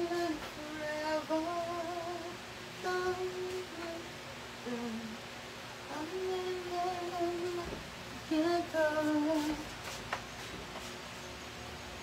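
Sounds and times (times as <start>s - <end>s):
woman humming slow tune: 0.0s - 5.2s.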